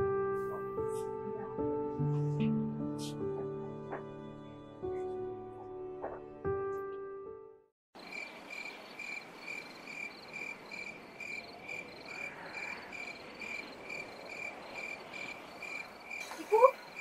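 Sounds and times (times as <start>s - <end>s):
crickets chirping: 8.0s - 17.0s.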